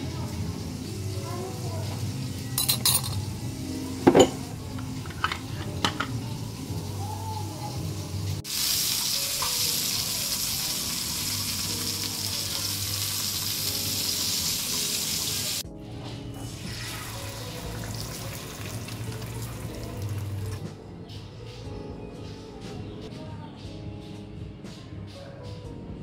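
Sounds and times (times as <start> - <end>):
sausage sizzling in hot oil: 0.0 - 2.6, 3.2 - 15.6, 16.4 - 20.6
background music: 0.0 - 26.0.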